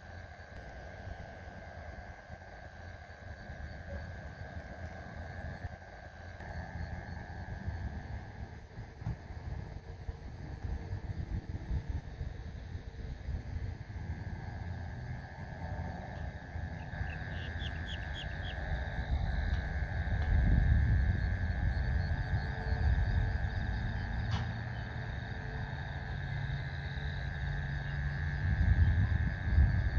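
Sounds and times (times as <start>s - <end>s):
high-pitched insect drone: 0.0s - 29.9s
wind rumble on microphone: 0.0s - 29.9s
faint chirps: 16.1s - 18.8s.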